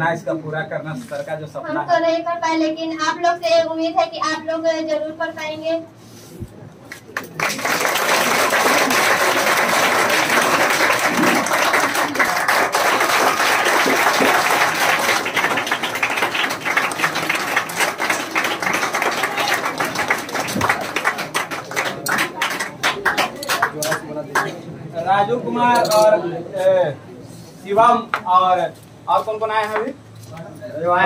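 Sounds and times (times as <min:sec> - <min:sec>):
students applauding: 0:07.2 - 0:24.5.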